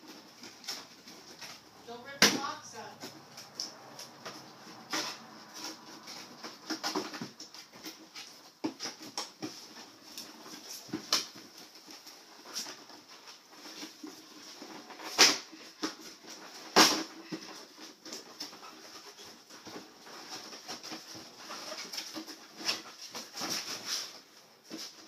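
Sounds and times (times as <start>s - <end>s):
packaging rustling: 0.0s - 25.0s.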